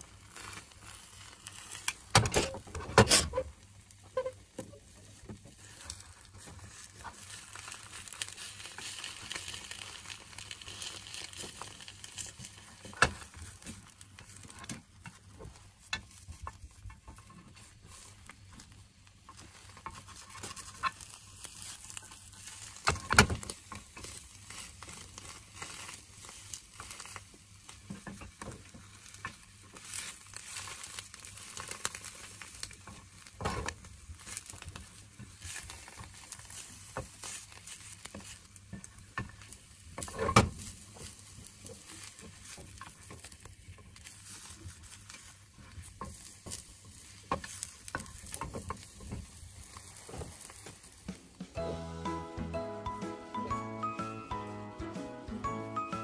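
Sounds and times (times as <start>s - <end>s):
egg sizzling: 0.0s - 2.2s, 3.6s - 56.0s.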